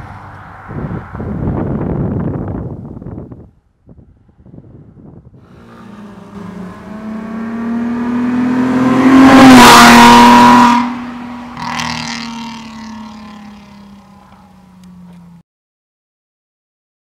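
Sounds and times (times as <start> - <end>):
car accelerating past: 5.4 - 15.4.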